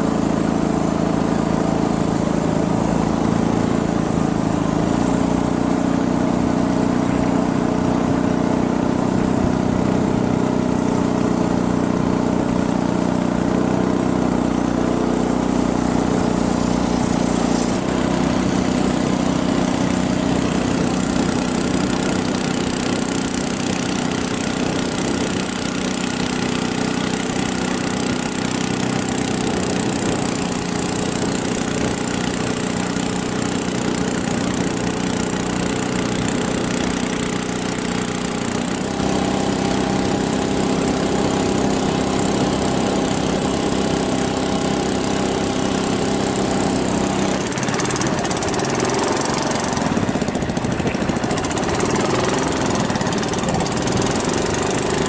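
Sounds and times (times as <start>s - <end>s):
small boat engine running: 0.0s - 55.0s
rushing hiss: 16.1s - 21.6s.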